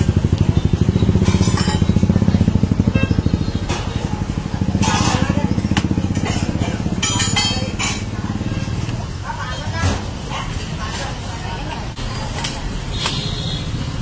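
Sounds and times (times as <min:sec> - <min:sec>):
engine idling: 0:00.0 - 0:09.4.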